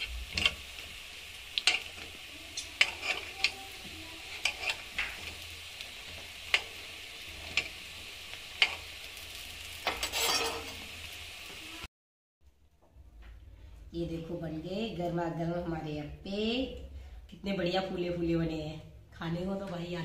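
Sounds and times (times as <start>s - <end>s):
oil sizzling: 0.0s - 11.9s
metal spoon clicking on pan: 1.6s - 2.0s, 2.6s - 3.6s, 4.3s - 5.3s, 8.6s - 8.8s.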